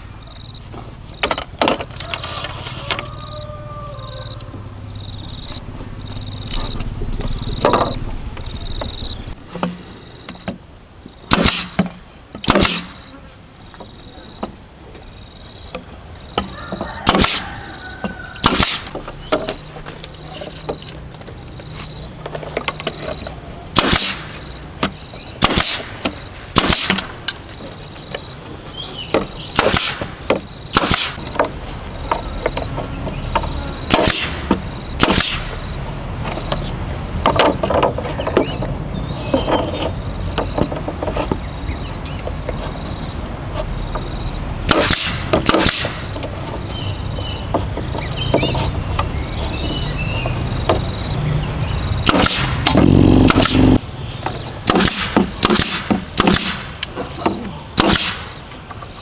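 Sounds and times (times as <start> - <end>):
pneumatic nailer firing: 11.3 - 13.2, 17.0 - 17.4, 18.4 - 19.0, 23.8 - 24.4, 25.4 - 27.2, 29.5 - 31.3, 33.9 - 35.6, 44.7 - 46.2, 52.0 - 53.8, 54.6 - 56.8, 57.8 - 58.4.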